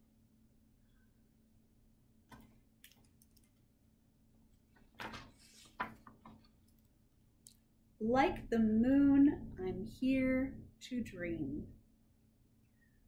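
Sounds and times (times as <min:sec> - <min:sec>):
page turning rustle: 0:04.7 - 0:06.7.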